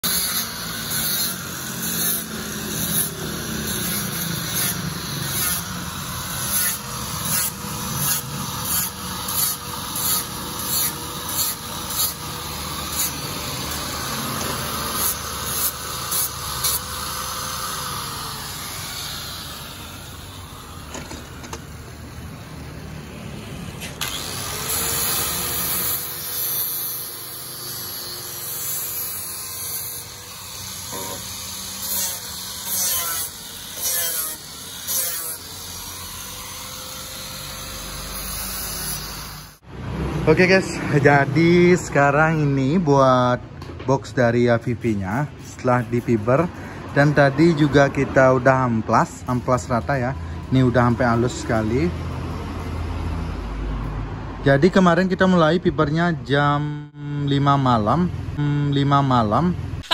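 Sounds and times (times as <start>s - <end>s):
angle grinder sanding: 0.0s - 21.8s, 24.0s - 39.6s.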